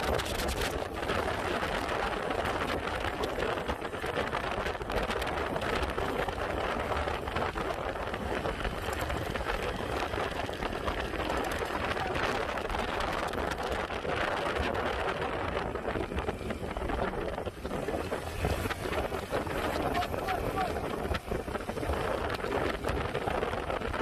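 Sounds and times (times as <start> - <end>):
road noise: 0.0 - 24.0
wind buffeting microphone: 0.0 - 24.0.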